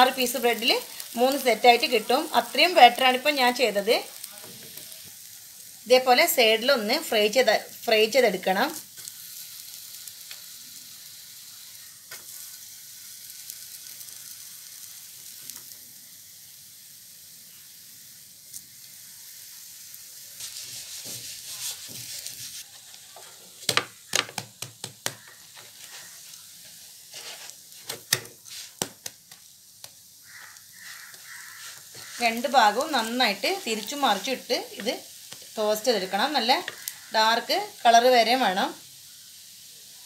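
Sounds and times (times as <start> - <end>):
bread sizzling in a pan: 0.0 - 40.0
sharp knocks and clicks on pan: 23.7 - 25.3.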